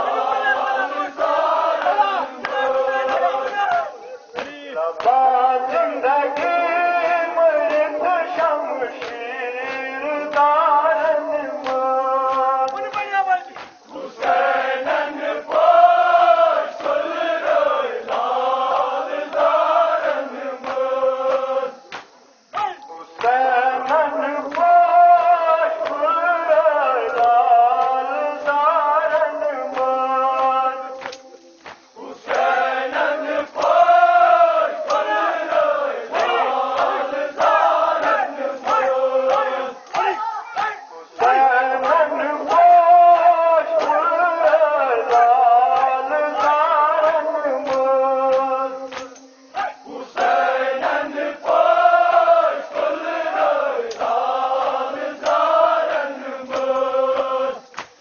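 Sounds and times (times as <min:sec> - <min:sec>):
men chanting a mourning lament: 0:00.0 - 0:58.0
hands slapping chest: 0:11.6 - 0:14.4, 0:20.6 - 0:24.7, 0:29.2 - 0:32.6, 0:34.9 - 0:50.4, 0:51.4 - 0:55.5, 0:56.5 - 0:58.0.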